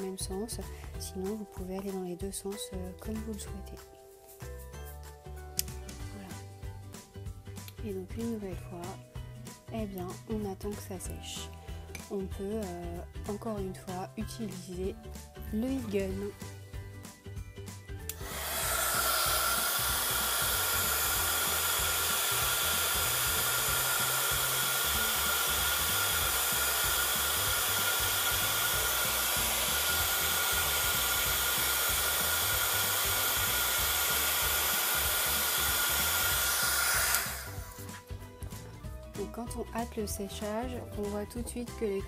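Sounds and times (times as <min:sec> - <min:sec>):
heat gun fan whine: 0:18.0 - 0:38.0.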